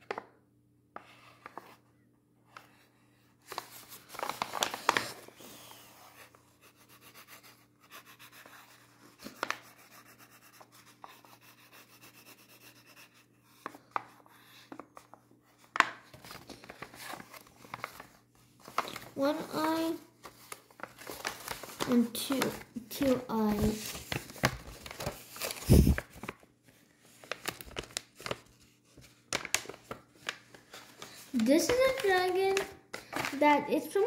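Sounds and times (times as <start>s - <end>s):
paper rustling and tapping: 0.0s - 0.4s, 3.4s - 5.2s, 8.7s - 10.1s, 13.6s - 26.4s, 27.1s - 34.0s
marker scratching on paper: 6.6s - 8.8s, 9.7s - 14.6s.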